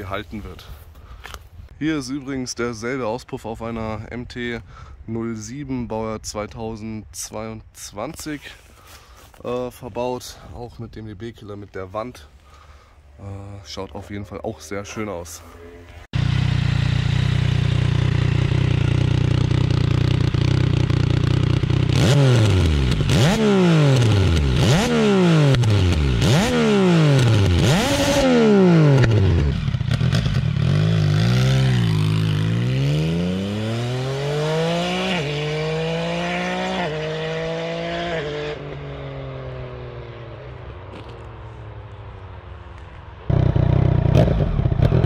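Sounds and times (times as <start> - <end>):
motorcycle engine revving: 16.1 - 41.2, 43.3 - 45.0.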